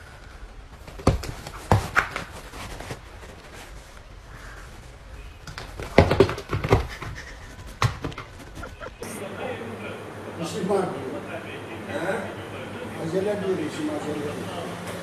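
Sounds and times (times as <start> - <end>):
cats sparring with soft thumps: 0.8 - 3.0, 5.4 - 8.8.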